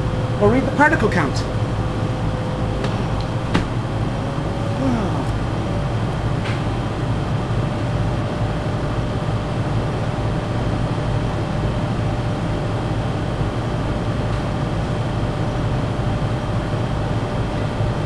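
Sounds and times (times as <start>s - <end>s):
low hum: 0.0s - 14.5s
blower rushing air: 1.6s - 10.2s.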